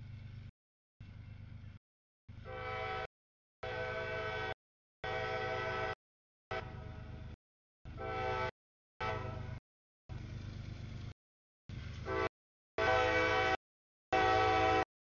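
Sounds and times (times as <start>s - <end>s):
train rumble: 0.0s - 14.9s
train horn chord: 2.4s - 7.2s, 7.9s - 9.6s, 12.0s - 14.9s.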